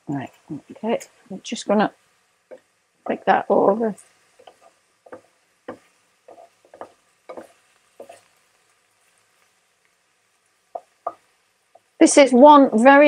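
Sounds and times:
chicken sizzling: 0.0 - 13.0
wooden utensils scraping frying pan: 4.0 - 9.5.

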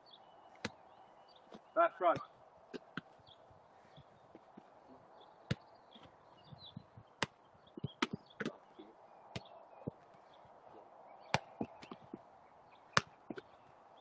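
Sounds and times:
football kicked and bouncing: 0.6 - 0.8, 1.5 - 3.2, 5.4 - 8.6, 9.3 - 10.0, 11.3 - 12.3, 13.0 - 13.5.

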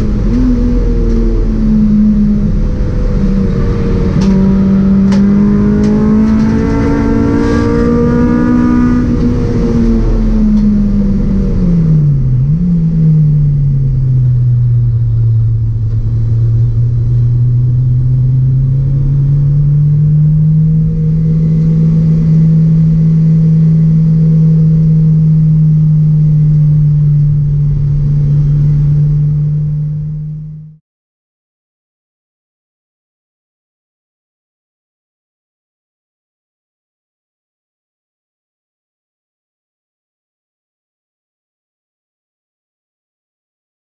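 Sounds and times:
car engine revving: 0.0 - 30.8.

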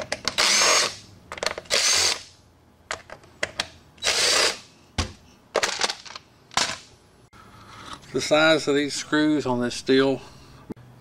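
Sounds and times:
drill-driver whining in short bursts: 0.4 - 1.0, 1.7 - 2.2, 4.0 - 4.6.

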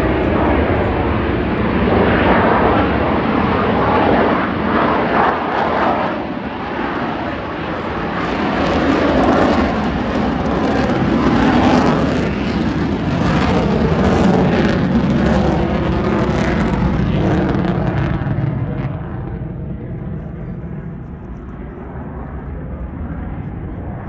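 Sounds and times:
jet engine roar: 0.0 - 24.0.

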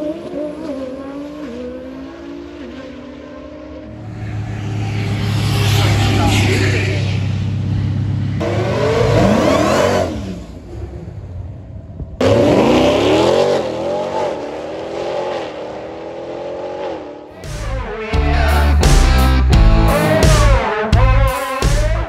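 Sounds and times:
car engine accelerating hard: 0.0 - 17.4.

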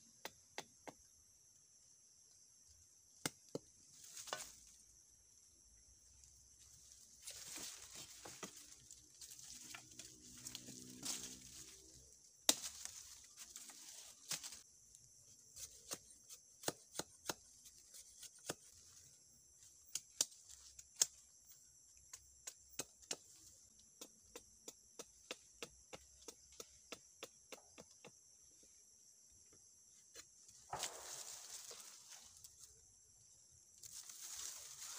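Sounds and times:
high-pitched insect drone: 4.0 - 14.6
rustling in dry leaves: 6.6 - 14.6, 30.7 - 32.7, 33.8 - 34.9.

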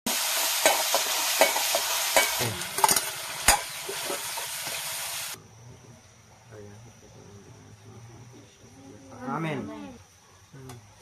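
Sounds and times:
food sizzling in oil: 0.1 - 5.4
metal spoon clinking on pan: 0.6 - 3.8.

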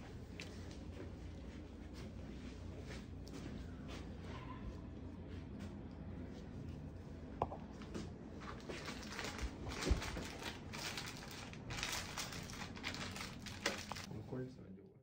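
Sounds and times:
bandage materials rustling: 8.4 - 14.1.

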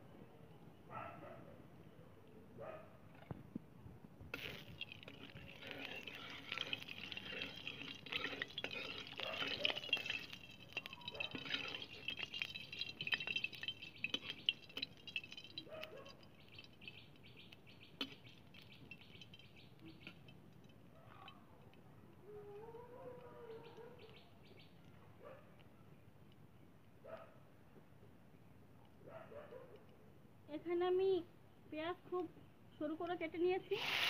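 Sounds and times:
oil sizzling and crackling: 4.3 - 20.8
spatula moving through oil: 4.4 - 15.6.

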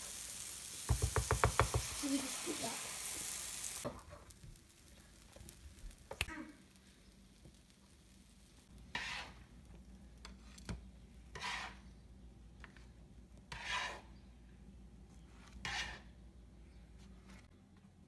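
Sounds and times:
spatula scraping griddle: 8.4 - 12.0, 13.4 - 14.3, 15.2 - 16.2.

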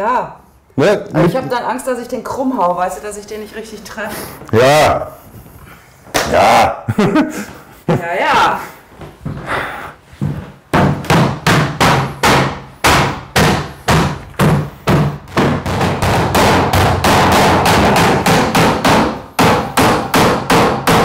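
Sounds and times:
hammer driving nails into wood: 10.7 - 21.0.

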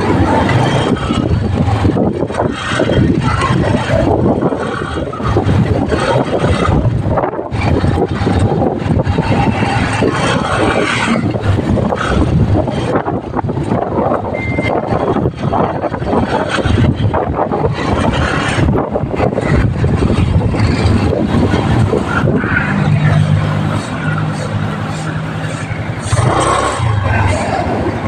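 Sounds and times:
motorcycle engine: 0.0 - 28.0
wind rushing over microphone: 0.0 - 28.0
short high beep: 14.3 - 14.8.

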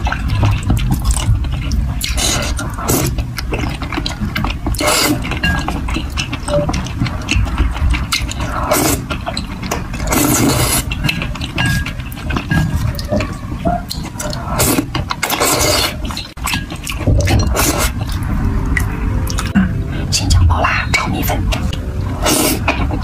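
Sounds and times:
chewing: 0.0 - 23.0
noodles slurped loudly: 14.4 - 16.2.

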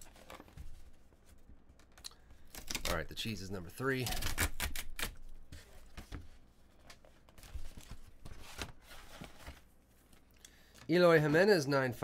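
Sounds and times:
envelope tear strip ripping: 4.0 - 5.2
paper rustling and crinkling: 5.5 - 10.3.

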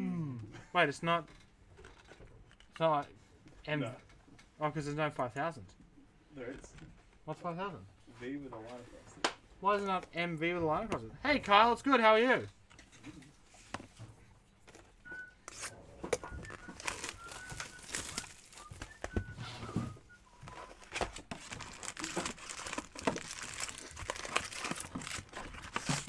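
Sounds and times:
card packs crinkling and tearing: 15.5 - 19.2, 20.4 - 26.0.

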